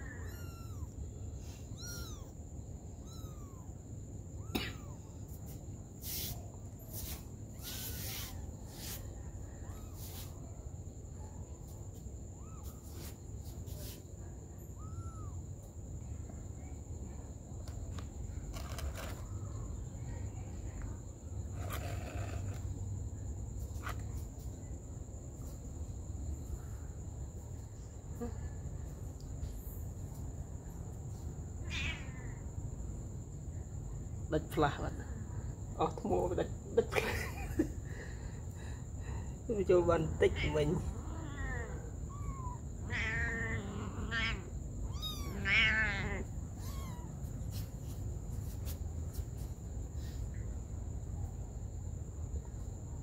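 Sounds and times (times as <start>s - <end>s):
kitten mewing: 0.0s - 1.0s, 1.6s - 2.4s, 3.0s - 3.7s, 4.4s - 5.1s, 14.8s - 15.4s, 31.7s - 32.3s, 41.2s - 47.2s
night insects trilling: 0.0s - 53.0s.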